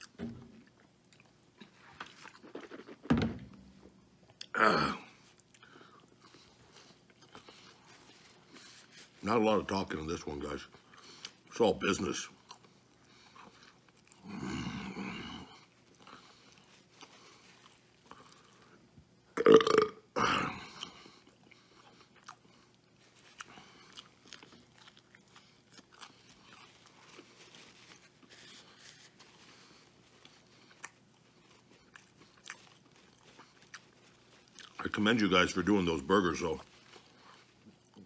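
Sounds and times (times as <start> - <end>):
man burping loudly: 4.5 - 5.1, 19.4 - 20.7.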